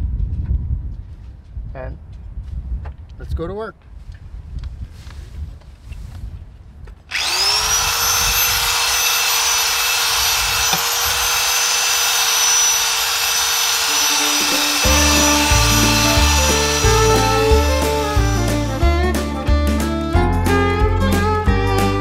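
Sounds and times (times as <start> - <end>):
power tool abrasive brush whining: 7.1 - 19.4
background music with bass and plucked strings: 14.1 - 22.0.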